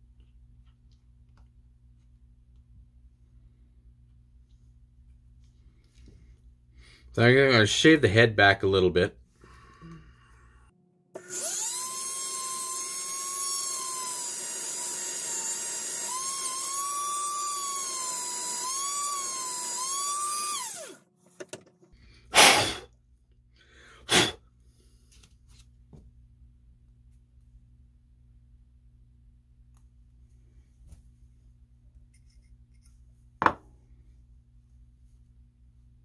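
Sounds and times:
rotary tool whining: 0:11.2 - 0:21.0.

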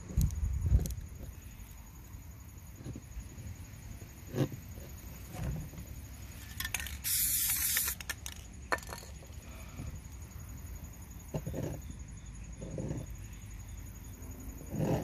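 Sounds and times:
spray can hiss: 0:06.6 - 0:08.3.

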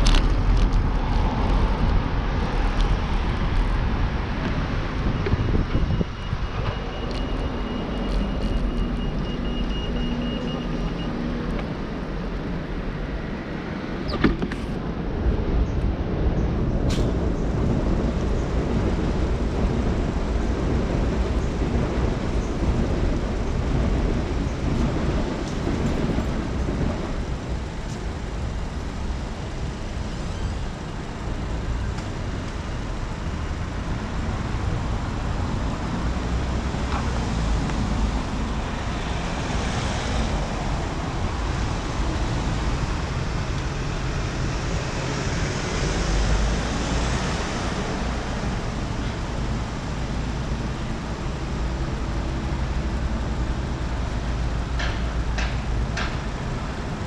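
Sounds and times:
wind on microphone: 0:00.0 - 0:09.2
passing cars and buses: 0:00.0 - 0:57.0.

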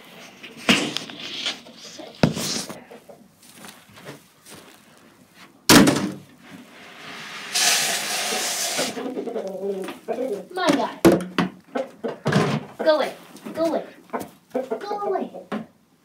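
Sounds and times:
wooden door slamming: 0:05.7 - 0:06.2.

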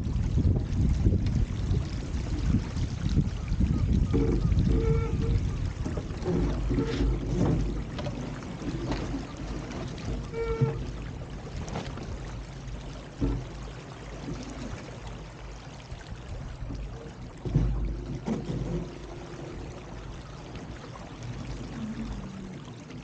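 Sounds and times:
water rushing along boat hull: 0:00.0 - 0:23.0
wind rumbling on microphone: 0:00.0 - 0:23.0
low thump: 0:13.2 - 0:13.6, 0:17.4 - 0:18.9.

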